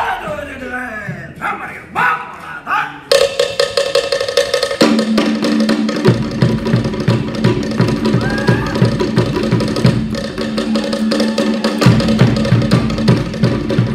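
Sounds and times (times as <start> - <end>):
deeper drum: 3.1 - 13.9
wooden slit drums: 3.1 - 13.9
bass drum beating: 4.9 - 13.9.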